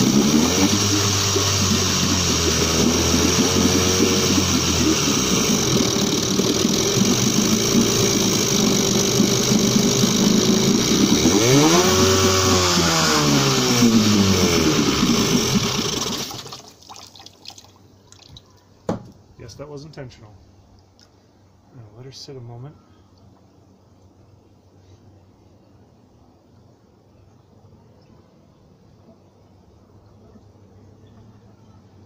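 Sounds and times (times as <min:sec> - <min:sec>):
outboard motor idling and revving: 0:00.0 - 0:16.6.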